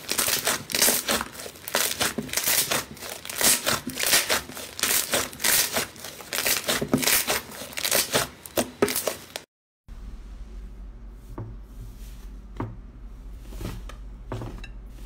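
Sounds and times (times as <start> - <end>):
crunchy slime crackling: 0.0 - 9.5.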